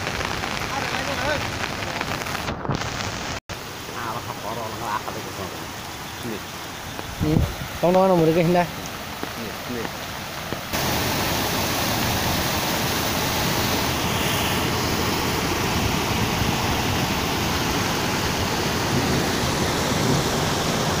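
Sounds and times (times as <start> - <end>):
water rushing over weir: 3.6 - 21.0.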